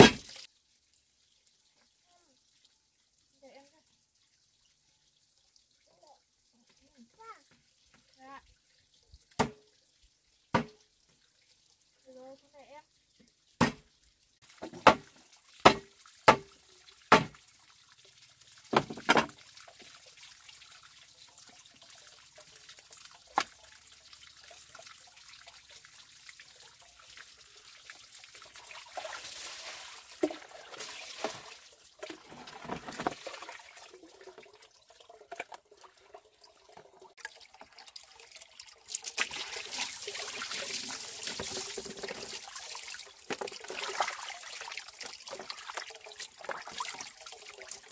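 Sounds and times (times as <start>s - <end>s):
water trickling and splashing: 0.0s - 47.9s.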